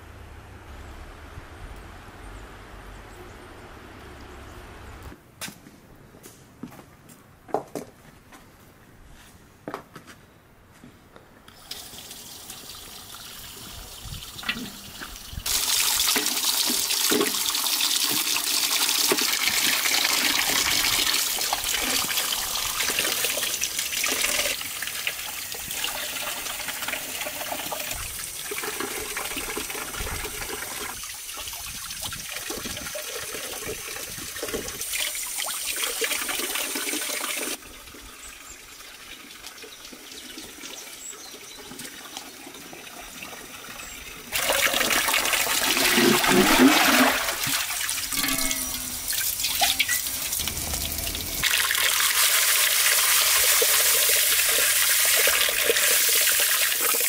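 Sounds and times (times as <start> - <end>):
water running into metal basin: 11.6 - 43.7, 44.3 - 57.0
water splashing: 44.3 - 57.0.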